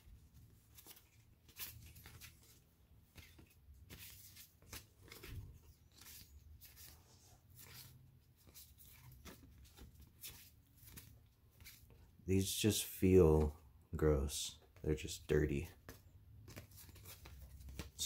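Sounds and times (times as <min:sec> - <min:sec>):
cardboard cards scratching together: 0:00.3 - 0:12.0, 0:15.8 - 0:18.0.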